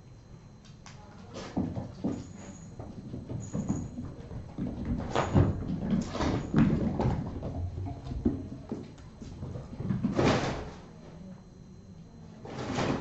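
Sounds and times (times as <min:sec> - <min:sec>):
kittens thumping and clattering: 0:01.4 - 0:10.9.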